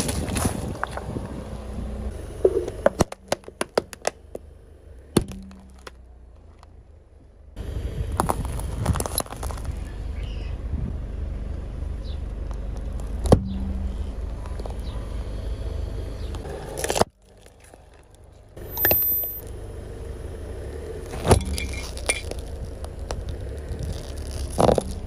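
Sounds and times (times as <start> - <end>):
car tyre crushing objects: 0.0 - 1.4, 2.1 - 7.0, 8.0 - 10.3, 12.0 - 15.0, 16.2 - 19.6, 21.0 - 25.0
car engine idling: 0.6 - 25.0.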